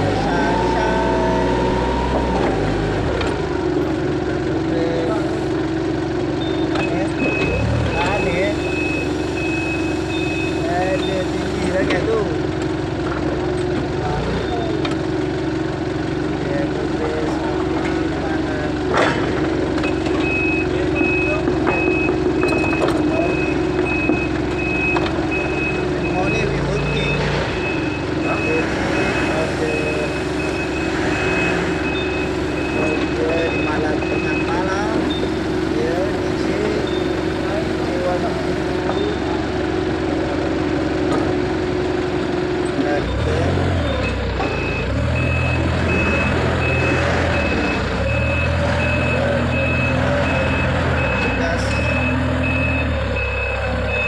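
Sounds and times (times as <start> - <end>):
reversing alarm beeping: 0.0 - 3.1, 6.4 - 12.0, 19.8 - 35.5, 36.1 - 37.5, 43.0 - 54.0
forklift running hum: 0.0 - 54.0.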